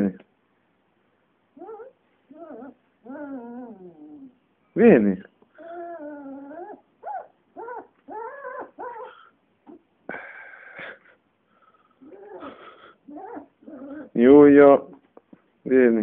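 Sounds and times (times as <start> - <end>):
puppy whining: 1.5 - 4.5, 5.5 - 9.9, 11.9 - 14.2.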